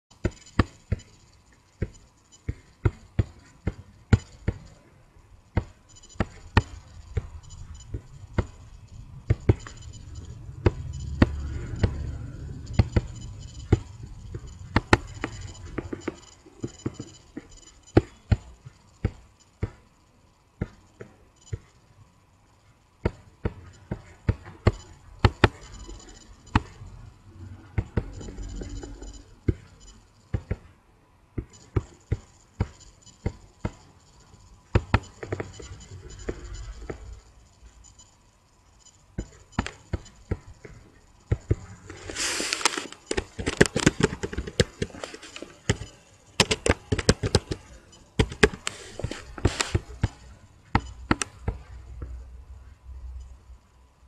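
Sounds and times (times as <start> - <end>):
computer mouse clicking: 41.4 - 50.2.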